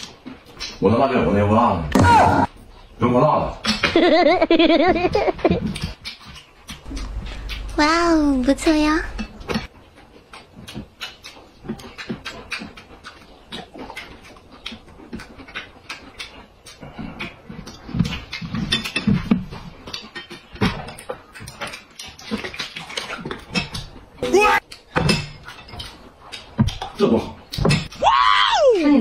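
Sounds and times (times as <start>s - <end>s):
man chewing and lip smacking: 5.1s - 7.8s, 9.2s - 28.0s.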